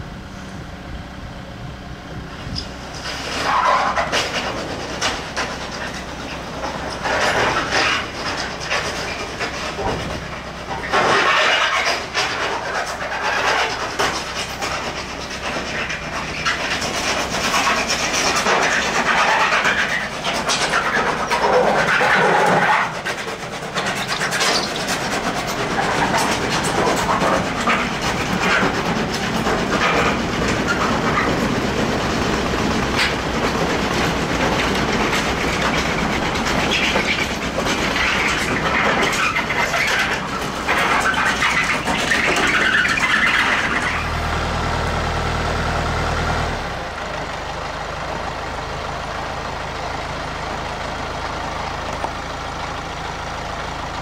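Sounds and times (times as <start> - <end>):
tractor diesel engine running: 0.0 - 54.0
rattling clatter: 2.4 - 44.1.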